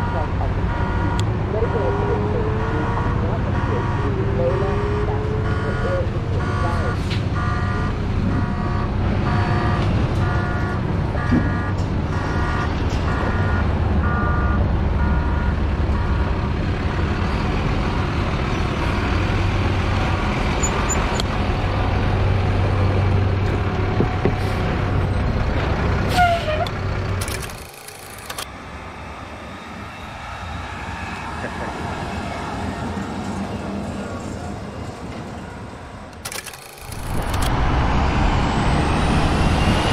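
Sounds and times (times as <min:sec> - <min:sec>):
reversing alarm beeping: 0:00.0 - 0:01.8, 0:02.6 - 0:16.4
truck diesel engine running: 0:00.0 - 0:28.5, 0:33.3 - 0:39.9.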